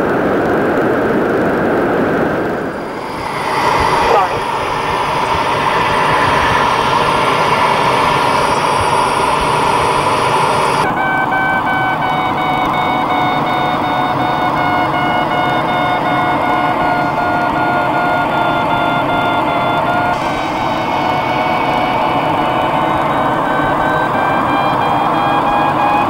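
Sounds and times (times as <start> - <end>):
rushing airflow noise: 0.0 - 26.0
variometer beeping rapidly: 10.8 - 26.0.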